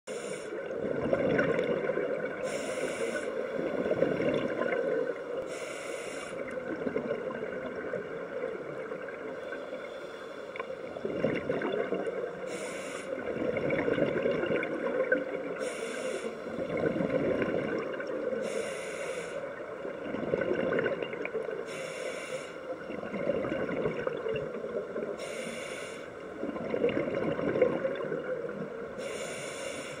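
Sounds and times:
regulator inhale hiss: 0.1 - 0.8, 2.4 - 3.6, 5.3 - 6.6, 9.4 - 10.8, 12.4 - 13.3, 15.6 - 16.6, 18.4 - 19.6, 21.6 - 22.7, 25.2 - 26.2, 29.0 - 30.0
exhaled air bubbling: 0.1 - 9.9, 10.5 - 30.0.

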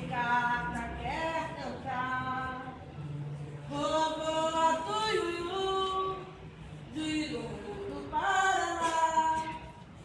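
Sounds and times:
woman singing unaccompanied: 0.0 - 2.8, 3.7 - 9.8.

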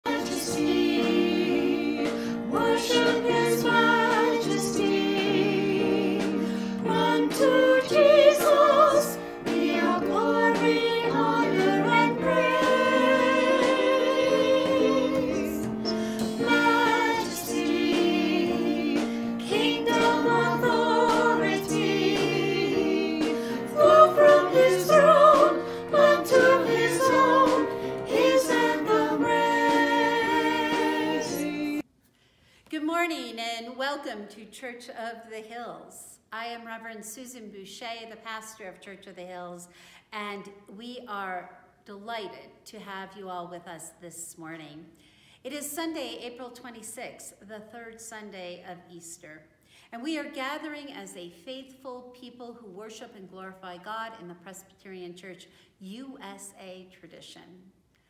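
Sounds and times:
choir singing long notes: 0.0 - 31.8.

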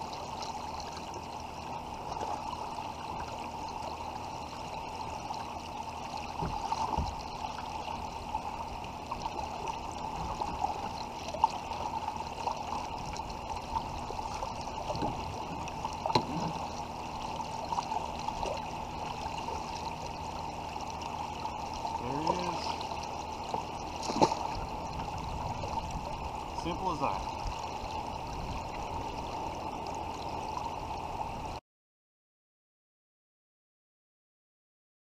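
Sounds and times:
river current rushing: 13.4 - 28.2.

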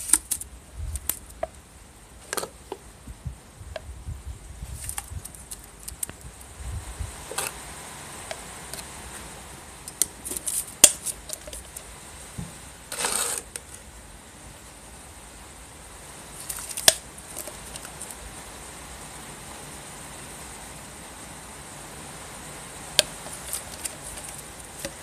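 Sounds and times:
gritty hiss of sand pouring: 12.8 - 13.9.

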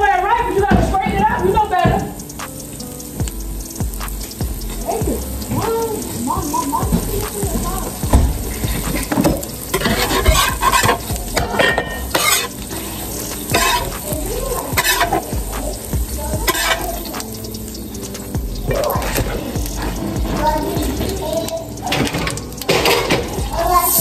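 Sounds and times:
pancakes sizzling on griddle: 0.0 - 24.0
spatula scraping and knocking griddle: 3.8 - 17.4, 18.2 - 21.2, 21.8 - 23.9.

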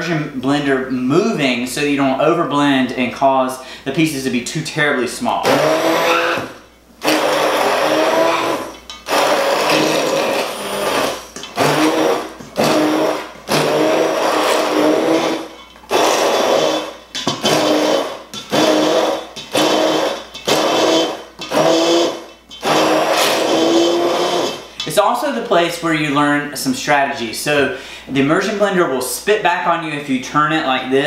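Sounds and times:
immersion blender whirring: 5.4 - 24.7.

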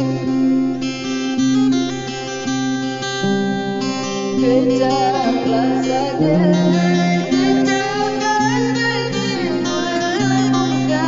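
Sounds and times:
acoustic guitar picking: 0.0 - 11.0
woman singing: 4.4 - 11.0.

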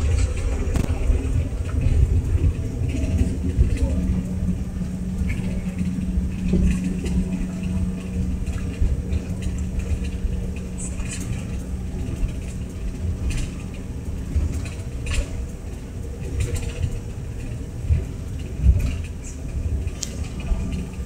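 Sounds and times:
jet engines rumbling in cabin: 0.0 - 21.0
faint clicks: 5.2 - 21.0.

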